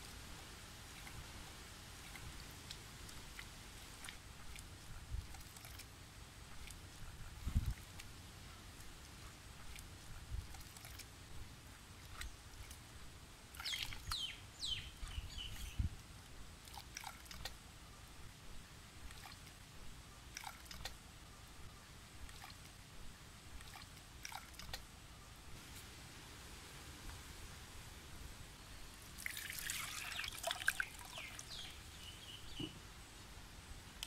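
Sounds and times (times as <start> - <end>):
milk dripping into bowl: 29.2 - 31.5.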